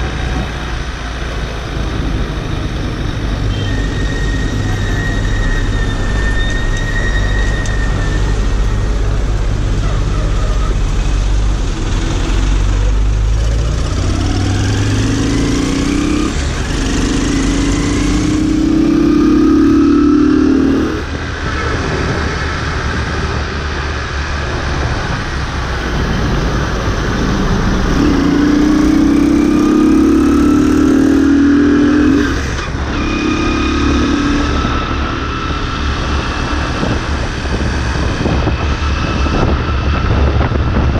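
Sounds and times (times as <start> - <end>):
motorcycle engine accelerating: 11.5 - 40.9.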